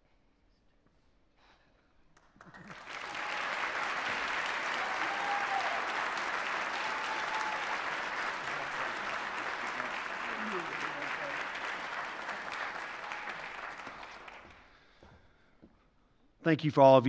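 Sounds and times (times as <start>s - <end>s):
audience applauding: 2.4s - 14.7s.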